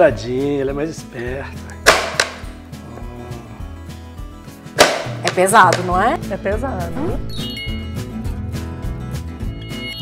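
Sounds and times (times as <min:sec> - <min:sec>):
background music with low beat: 0:00.0 - 0:09.2.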